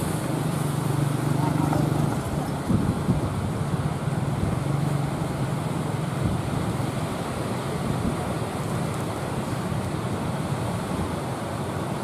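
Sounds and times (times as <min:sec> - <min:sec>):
wind buffeting microphone: 0:02.0 - 0:04.8.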